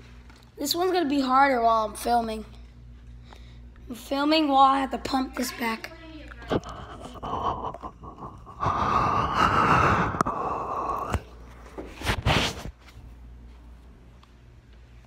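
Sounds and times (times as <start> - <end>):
loud burst of noise: 6.8 - 11.2.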